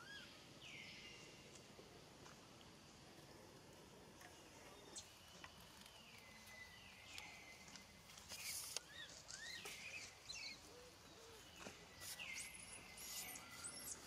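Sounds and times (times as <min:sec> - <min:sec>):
high chirping calls: 0:08.4 - 0:14.0.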